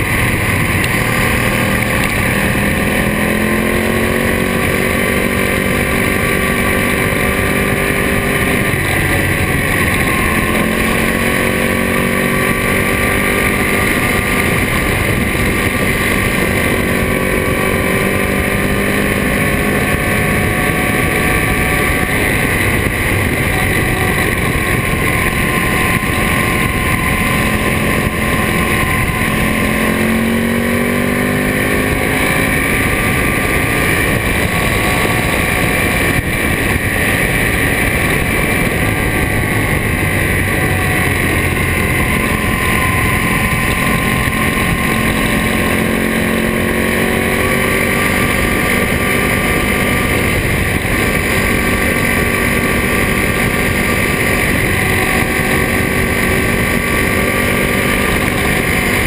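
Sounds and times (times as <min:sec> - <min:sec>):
motorcycle engine under load: 0:00.0 - 0:59.0
wind rushing on microphone: 0:00.0 - 0:59.0.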